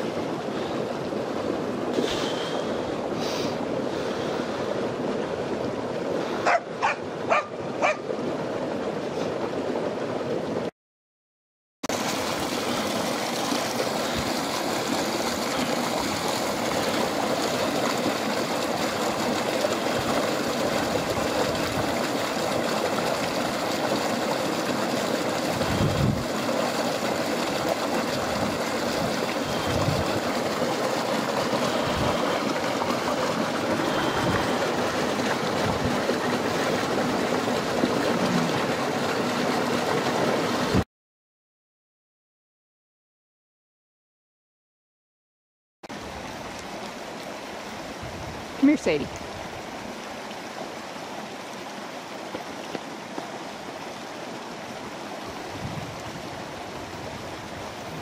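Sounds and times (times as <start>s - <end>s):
creek water running: 0.0s - 10.7s, 11.8s - 40.8s, 45.9s - 58.0s
dog barking: 6.4s - 8.0s.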